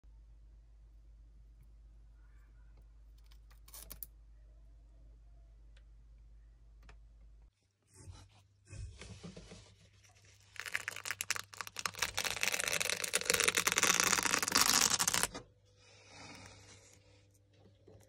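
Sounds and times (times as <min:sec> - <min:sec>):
dry skin crackling and tearing: 0:10.2 - 0:15.4.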